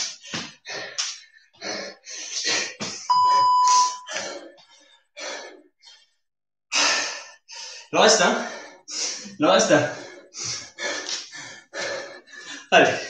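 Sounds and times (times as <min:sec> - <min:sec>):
man breathing hard: 0:00.0 - 0:03.0, 0:04.1 - 0:06.0, 0:06.7 - 0:13.0
electronic timer beep: 0:03.1 - 0:04.1.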